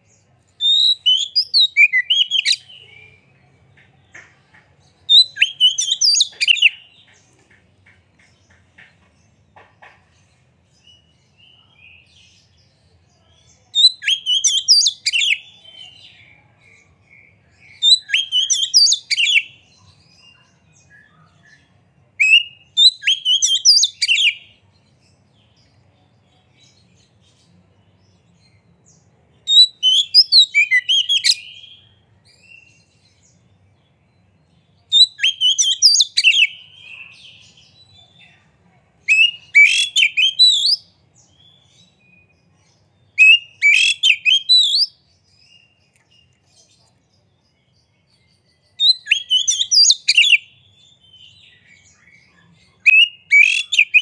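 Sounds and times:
bird singing whistles and chatter: 0.6s - 3.3s, 5.1s - 6.9s, 13.7s - 16.4s, 17.2s - 19.6s, 20.2s - 24.5s, 29.4s - 32.8s, 34.9s - 37.8s, 39.1s - 42.4s, 43.1s - 46.5s, 48.0s - 54.0s.

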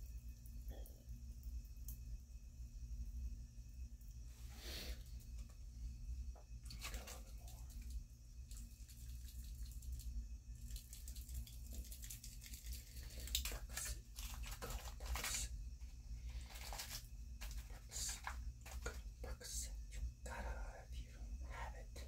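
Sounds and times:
candy packet crinkling and tearing: 10.7s - 15.5s, 16.3s - 19.0s.

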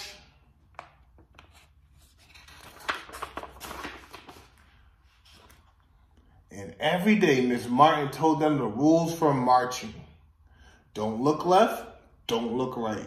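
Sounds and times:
paper pages rustling: 0.7s - 6.0s.

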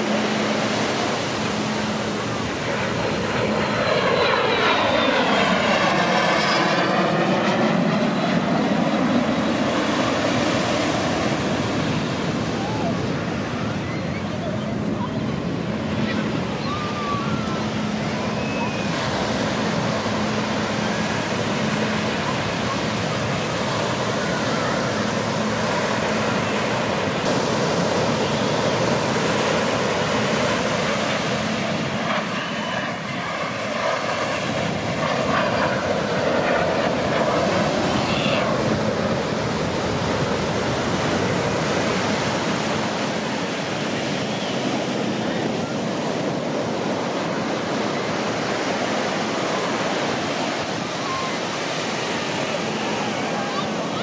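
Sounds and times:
surf rushing: 0.0s - 54.0s
wind: 0.0s - 54.0s.

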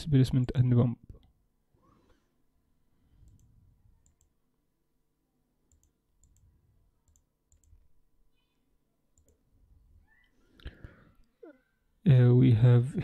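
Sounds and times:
computer mouse clicks: 3.2s - 4.4s, 5.7s - 7.8s, 9.2s - 9.4s.

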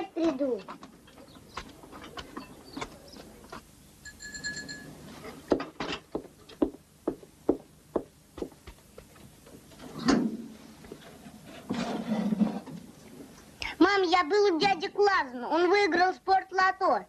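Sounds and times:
bell ringing: 4.0s - 5.0s.

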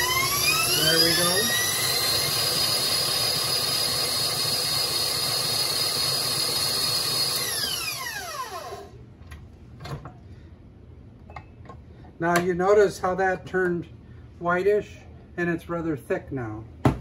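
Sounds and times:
stand mixer motor whining: 0.0s - 8.9s.

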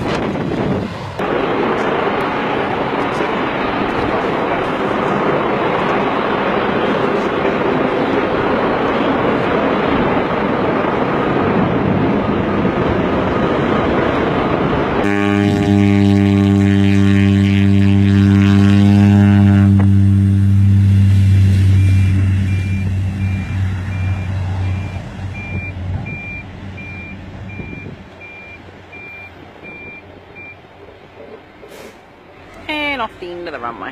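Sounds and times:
jet engines rumbling: 0.0s - 33.9s
propeller plane engine drone: 0.0s - 33.9s
high beep: 21.8s - 30.6s.

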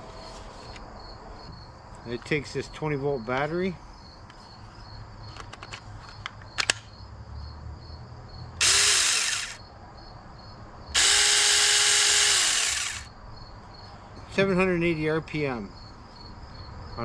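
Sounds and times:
electric chainsaw motor spinning: 8.6s - 9.6s, 11.0s - 13.1s.

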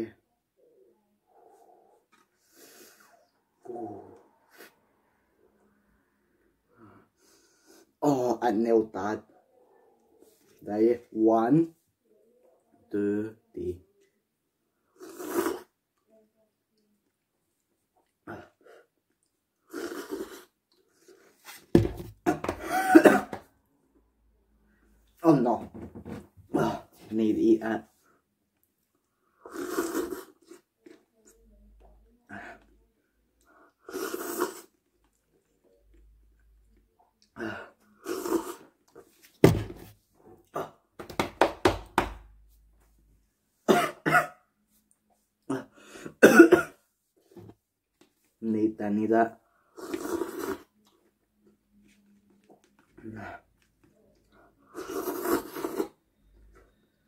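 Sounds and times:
man coughing outburst: 22.3s - 23.4s, 43.7s - 44.4s, 46.1s - 46.8s.

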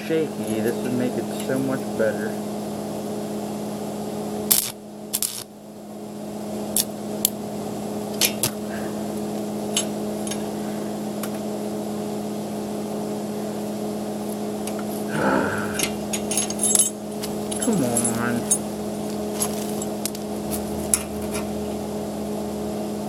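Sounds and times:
welding arc buzzing: 0.0s - 5.6s, 6.2s - 23.0s
welding crackles and pops: 4.4s - 5.5s, 6.7s - 7.4s.

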